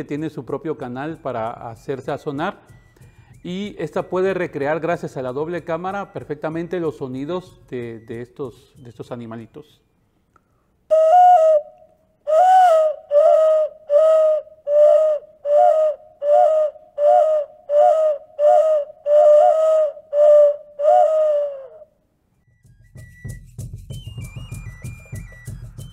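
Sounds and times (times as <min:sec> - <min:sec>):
clay ocarina hooting notes: 0:10.9 - 0:21.9.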